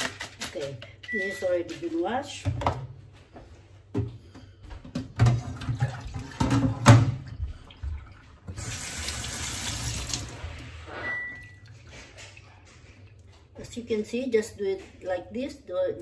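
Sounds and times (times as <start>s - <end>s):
plastic bowls knocking in sink: 4.8s - 7.4s
kitchen tap running: 5.0s - 10.7s.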